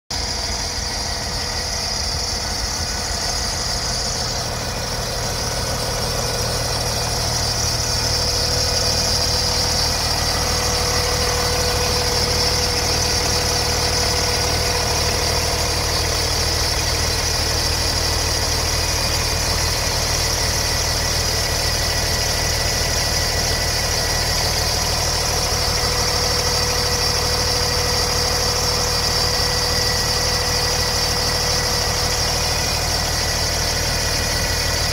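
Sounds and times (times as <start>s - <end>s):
diesel engine idling: 0.1s - 34.9s.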